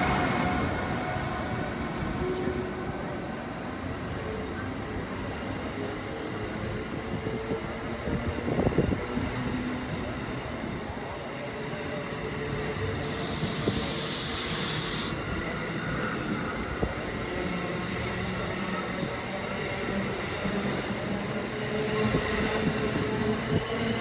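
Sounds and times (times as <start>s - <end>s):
train wheels rumbling on rails: 5.7s - 24.0s
hiss: 13.0s - 15.2s.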